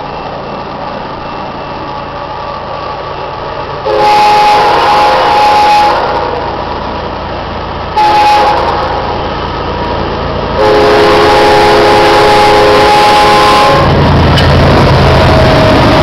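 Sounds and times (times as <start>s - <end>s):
train low rumble: 0.0s - 16.0s
locomotive air horn blasts: 3.8s - 6.4s, 8.0s - 9.1s, 10.6s - 13.9s.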